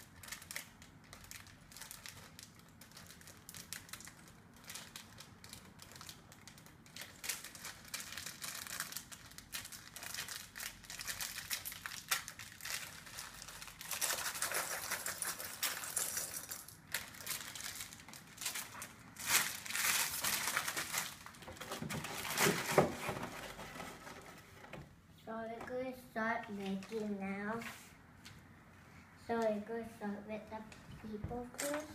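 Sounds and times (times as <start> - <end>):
plastic bags crinkling: 0.0 - 24.2.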